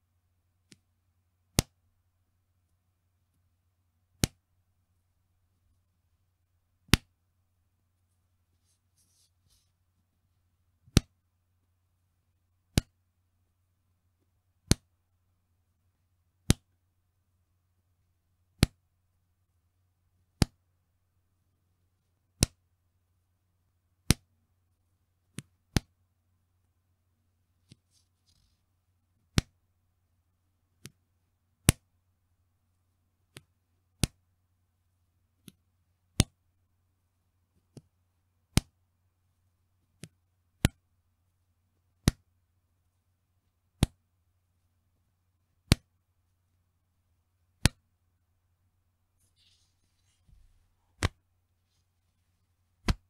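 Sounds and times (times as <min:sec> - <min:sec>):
elastic band snapping: 0:51.0 - 0:51.2.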